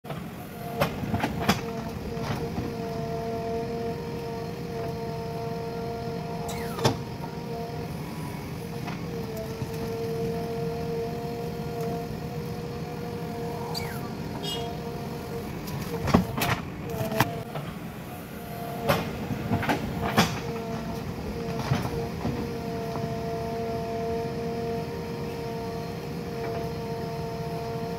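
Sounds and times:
diesel engine whining under load: 0.1s - 27.9s.

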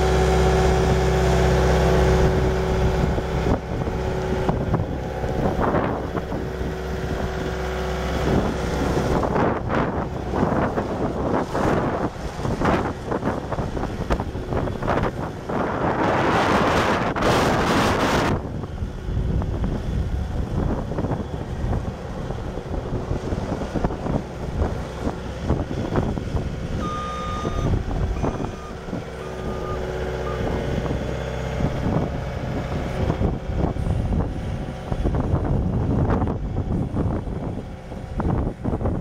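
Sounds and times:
diesel engine running: 0.0s - 39.0s
backup alarm beeping: 26.8s - 31.4s.

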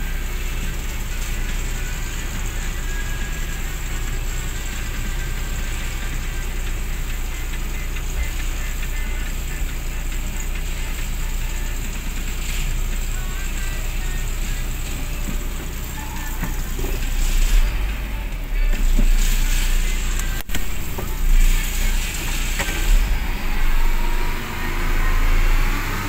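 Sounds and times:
diesel engine running: 0.0s - 26.0s.

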